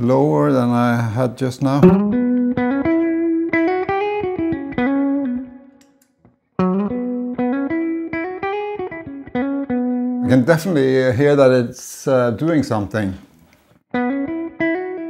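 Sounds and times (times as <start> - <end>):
clean electric guitar phrase: 1.8 - 5.7.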